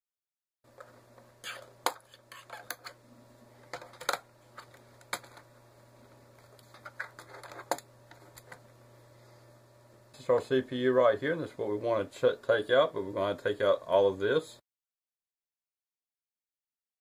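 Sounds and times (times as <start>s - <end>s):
plastic scraping: 6.4s - 8.6s.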